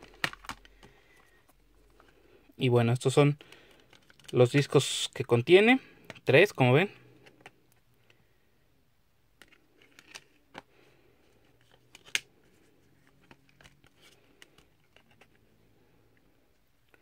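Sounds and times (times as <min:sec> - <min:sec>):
plastic disc case clicks: 0:00.0 - 0:00.9.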